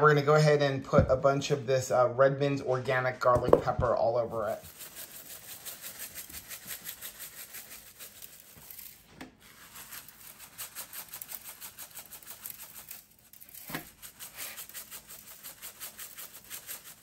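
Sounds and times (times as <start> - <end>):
shaker jar knock: 3.3 - 7.0
seasoning shaker rattling: 3.5 - 17.0.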